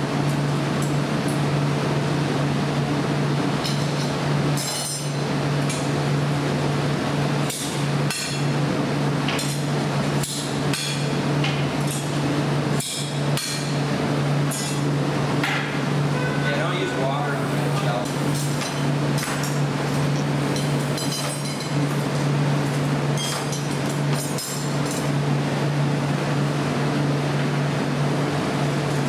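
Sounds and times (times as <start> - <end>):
furnace and blowers humming: 0.0 - 29.0.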